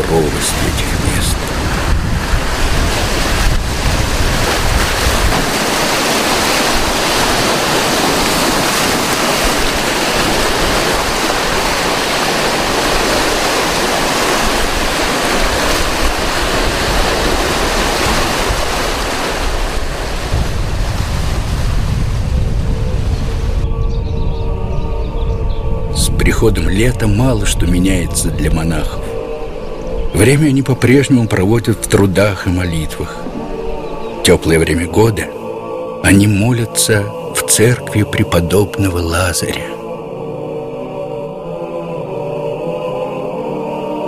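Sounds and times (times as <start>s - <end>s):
waves breaking over boulders: 0.0s - 23.6s
wind rumbling on microphone: 0.0s - 30.4s.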